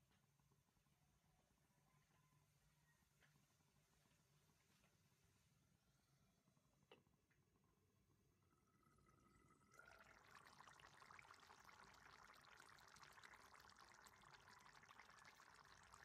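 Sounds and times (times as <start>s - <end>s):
liquid bubbling and crackling: 6.5s - 16.0s.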